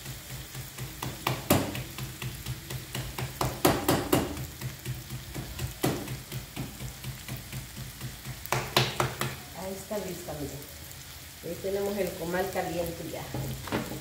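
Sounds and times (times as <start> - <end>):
hands patting dough: 0.4 - 9.5.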